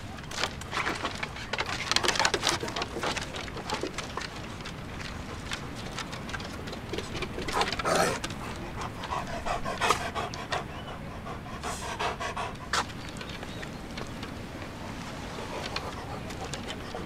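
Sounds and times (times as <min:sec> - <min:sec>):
dog panting: 0:07.2 - 0:13.4, 0:14.7 - 0:17.0.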